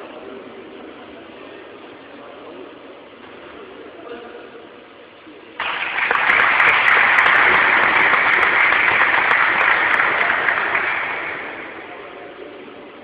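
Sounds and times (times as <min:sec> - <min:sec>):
audience applauding: 0:05.6 - 0:12.2.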